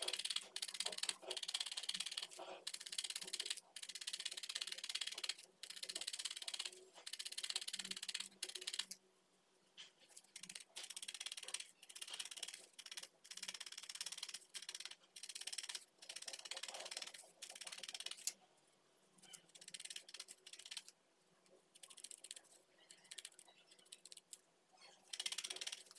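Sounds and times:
felting needle poking foam: 0.0s - 9.0s, 9.8s - 18.4s, 19.2s - 21.0s.

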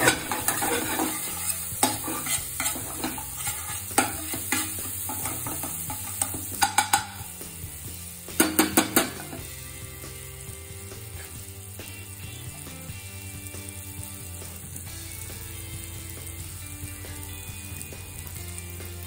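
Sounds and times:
spatula scraping a metal pan: 0.0s - 7.3s, 11.1s - 11.5s
paste sizzling in oil: 0.0s - 19.0s.

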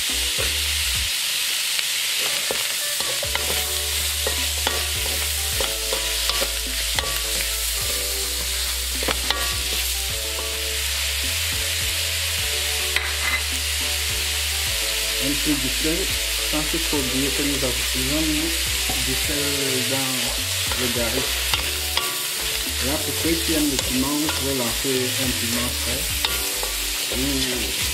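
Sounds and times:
vegetables sizzling in oil: 0.0s - 27.9s
spatula tapping pan: 2.2s - 10.7s, 12.9s - 13.6s, 20.7s - 24.8s, 25.6s - 27.9s
wooden spatula scraping wok: 2.2s - 15.7s, 16.4s - 27.9s.

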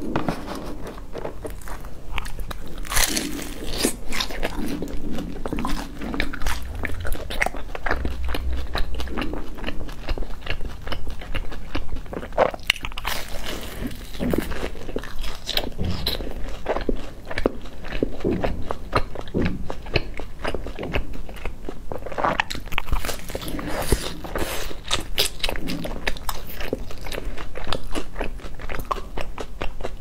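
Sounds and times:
crispy food crackling when torn: 0.0s - 18.2s
crunchy bite: 1.4s - 10.8s.

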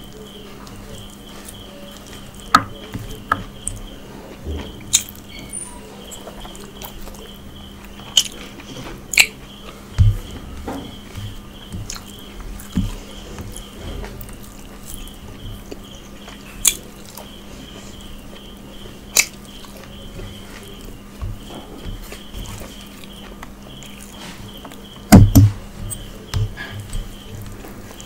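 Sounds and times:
louder knocks: 25.1s - 25.6s.

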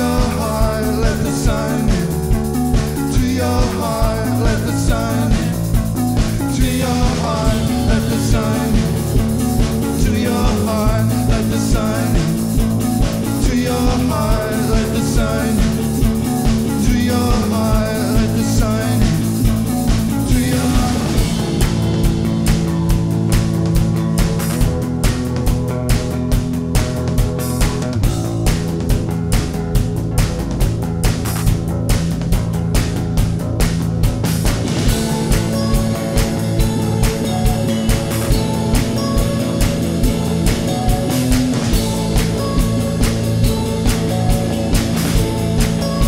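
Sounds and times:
rock band playing with singer: 0.0s - 46.0s.

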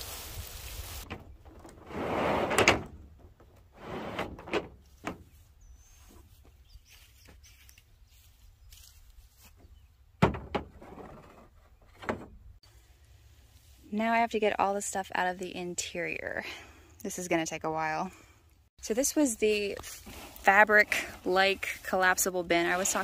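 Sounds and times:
mat scraping across truck bed: 1.6s - 3.0s, 3.7s - 5.4s, 10.7s - 12.4s.

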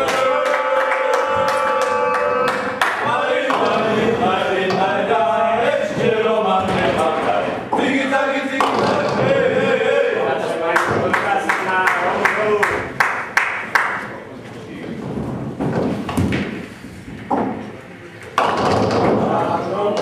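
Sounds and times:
voices singing: 0.0s - 12.9s
bowling balls knocking pins: 2.8s - 9.7s, 14.8s - 20.0s.

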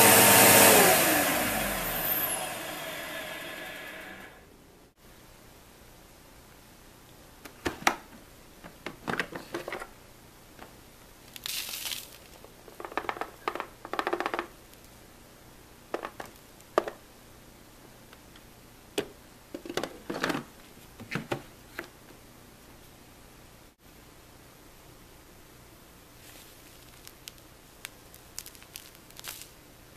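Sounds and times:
plastic clicks and knocks: 12.8s - 14.5s
rustling hiss: 26.1s - 29.6s.

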